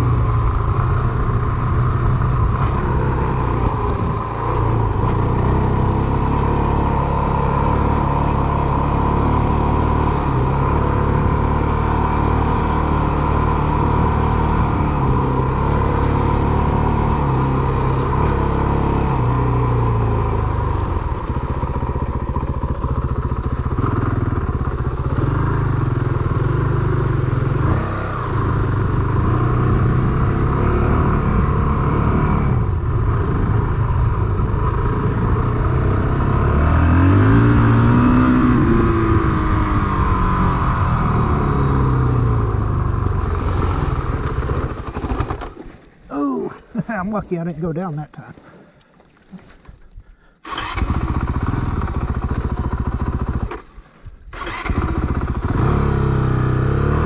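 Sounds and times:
motorcycle engine under throttle: 0.0 - 45.6, 50.4 - 57.0.

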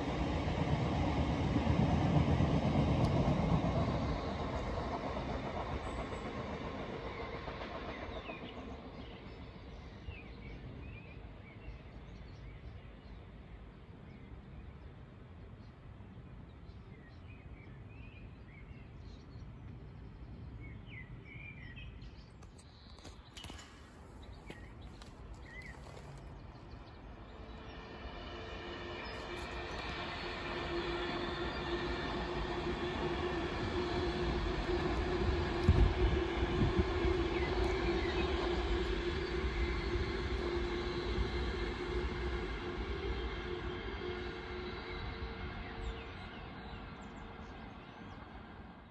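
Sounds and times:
birds chirping: 20.7 - 27.8.

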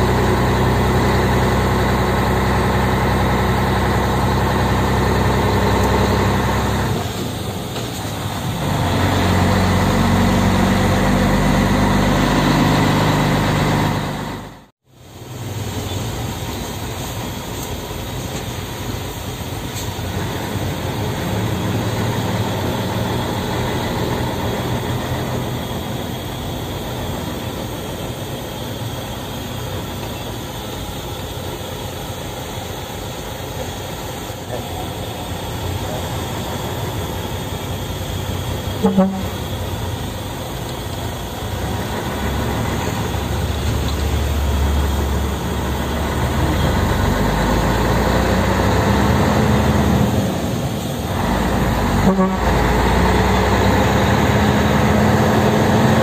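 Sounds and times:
diesel truck engine running: 0.0 - 56.0
steady hiss: 14.9 - 56.0.

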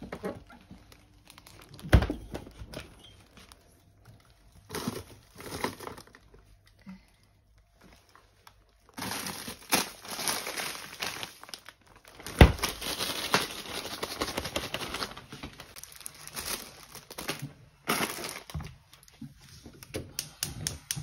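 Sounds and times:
plastic bags crinkling: 0.0 - 19.2
fridge door shutting: 1.8 - 3.0.

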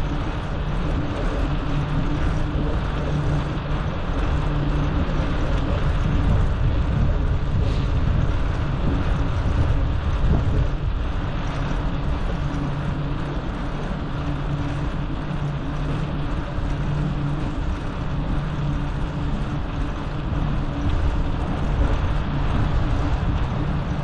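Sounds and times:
road traffic hum: 0.0 - 24.0.

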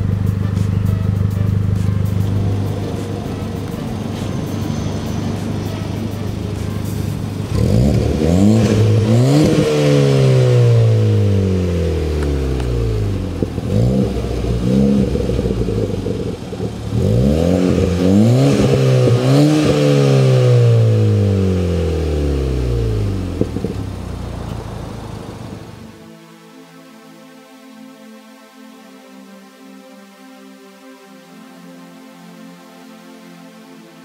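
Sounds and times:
car engine revving: 0.0 - 26.0.

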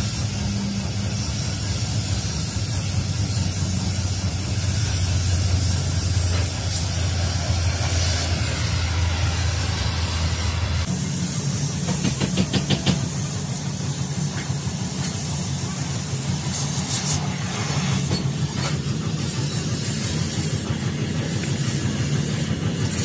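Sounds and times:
cutting torch hissing: 0.0 - 23.0.

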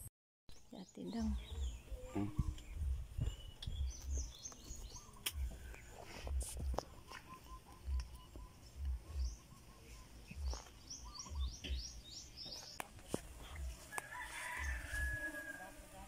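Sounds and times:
small bird chirping: 0.5 - 12.9
rooster crowing: 13.8 - 16.0.

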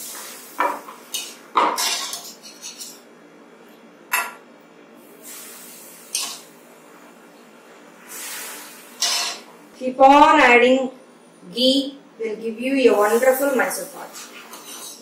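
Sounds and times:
hot ghee sizzling: 0.0 - 1.6, 5.0 - 7.0, 7.9 - 9.5.

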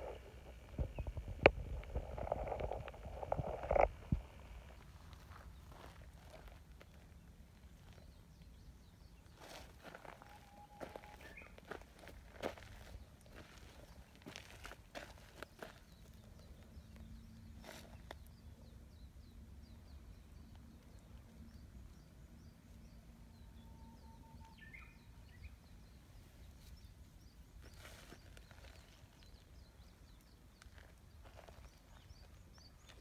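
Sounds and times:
low rumble: 0.0 - 6.3
faint bird chirps: 7.8 - 33.0.

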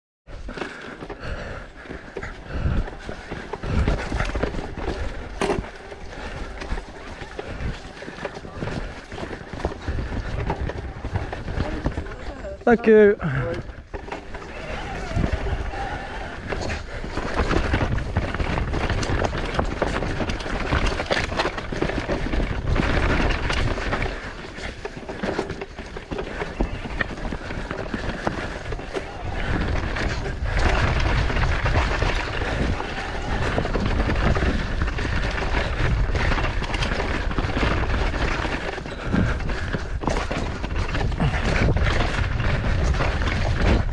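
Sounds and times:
bike rattling and knocking: 0.3 - 43.9
bike tyres rumbling over stones: 0.3 - 43.9.

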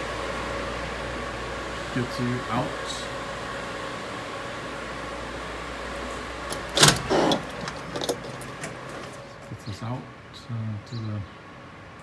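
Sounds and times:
building interior hum: 0.0 - 12.0
door push bar clack: 6.5 - 8.2.

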